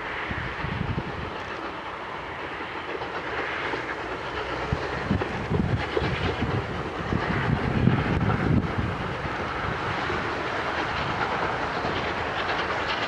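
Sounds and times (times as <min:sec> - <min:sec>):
low thumps of locomotive: 0:00.0 - 0:13.0
steam locomotive exhaust rushing: 0:00.0 - 0:13.0.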